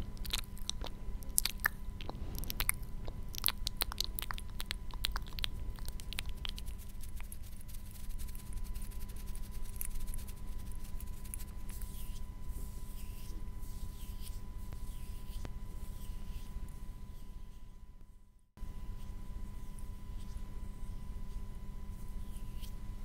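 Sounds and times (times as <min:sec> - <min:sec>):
electrical hum: 0:00.0 - 0:23.0.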